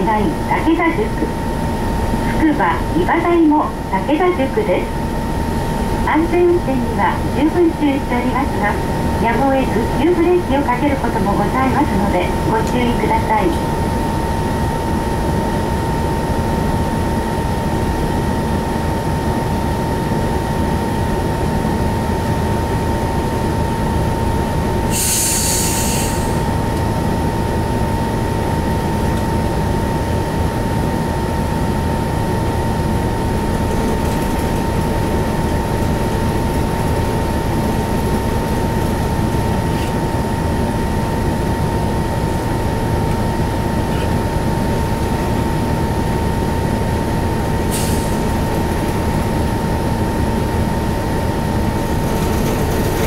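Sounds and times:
air hiss: 24.9 - 26.4.

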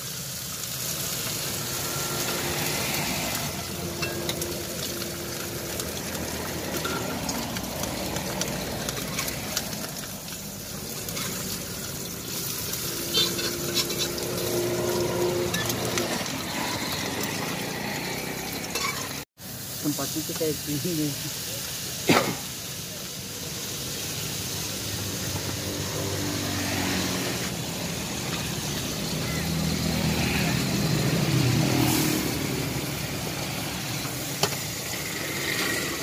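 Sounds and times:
food sizzling on a griddle: 0.0 - 36.0.

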